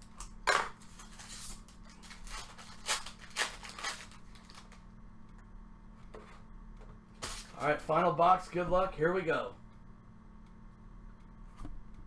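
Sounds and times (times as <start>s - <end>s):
plastic wrapper crinkle: 0.0s - 4.9s.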